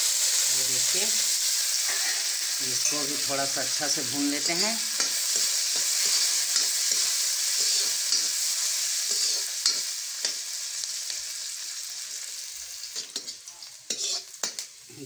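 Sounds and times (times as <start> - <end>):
onion sizzling in hot oil: 0.0 - 15.0
spoon scraping and knocking pan: 4.4 - 8.4, 9.0 - 10.4, 13.0 - 14.7.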